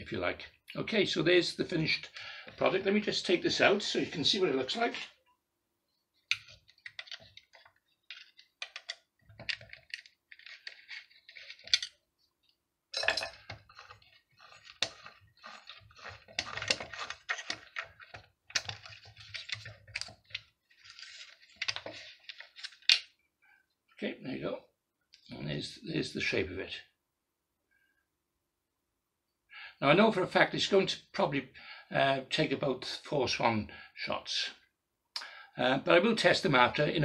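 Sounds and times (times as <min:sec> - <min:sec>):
rustling: 0:06.1 - 0:12.6, 0:13.3 - 0:22.9.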